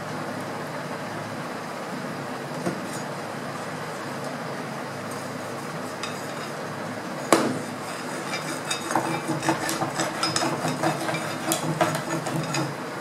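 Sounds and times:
stick scraping inside metal tube: 0:07.7 - 0:12.7.

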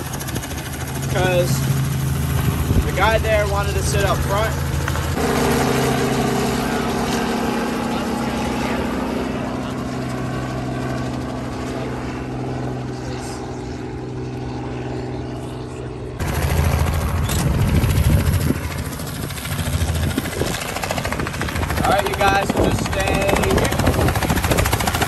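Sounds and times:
helicopter flying: 0:00.0 - 0:25.0.

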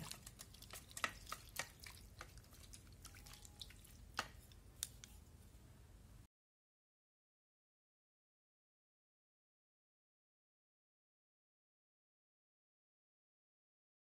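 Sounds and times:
water dripping: 0:00.0 - 0:05.1.

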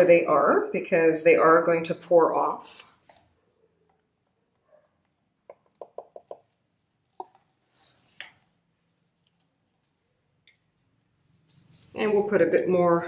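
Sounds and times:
stick tapping plastic cup: 0:05.5 - 0:06.4.

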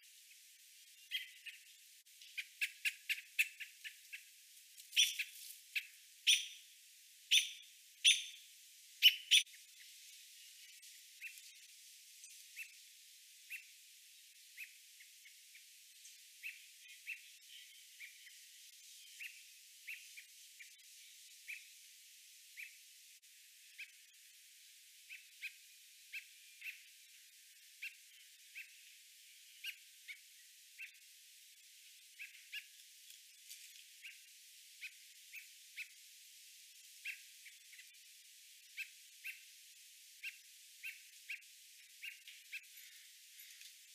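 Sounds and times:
bird alarm calls: 0:01.1 - 0:01.6, 0:05.0 - 0:06.6, 0:07.3 - 0:08.4, 0:09.0 - 0:09.5.

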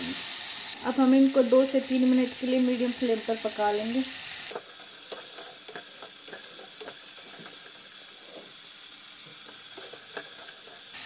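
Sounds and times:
food sizzling in a pan: 0:00.0 - 0:11.0
spatula scraping a pan: 0:04.5 - 0:11.0.

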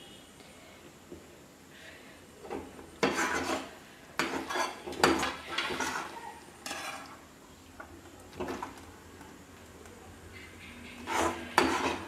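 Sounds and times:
spoon scraping sticky mixture: 0:03.0 - 0:07.2, 0:10.6 - 0:12.0.

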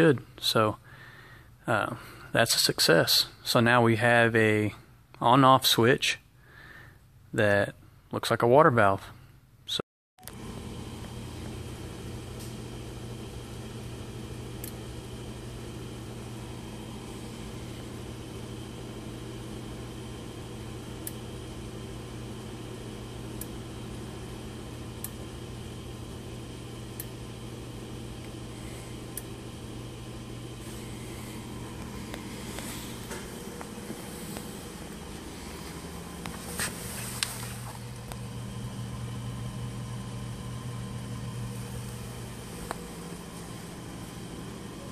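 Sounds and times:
low hum: 0:23.2 - 0:44.9.

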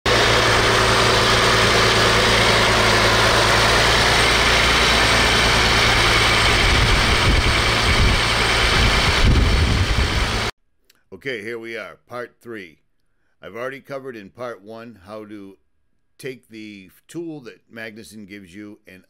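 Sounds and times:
car engine idling: 0:00.1 - 0:10.5.

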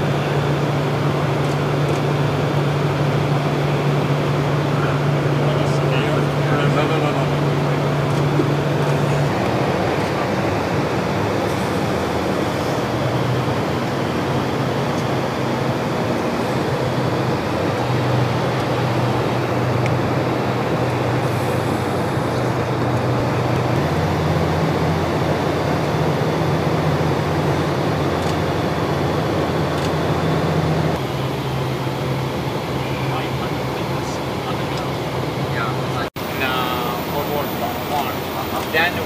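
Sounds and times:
aircraft engine drone: 0:00.0 - 0:39.0
rushing air: 0:00.0 - 0:39.0.

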